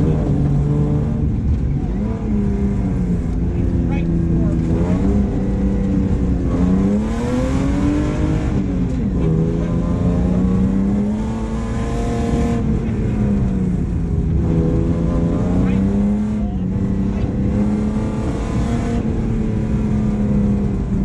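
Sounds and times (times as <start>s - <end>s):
car engine accelerating: 0.0s - 21.0s.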